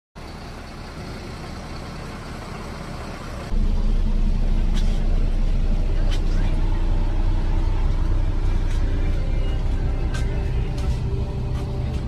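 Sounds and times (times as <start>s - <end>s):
bus engine rumble and road noise: 0.2s - 12.0s.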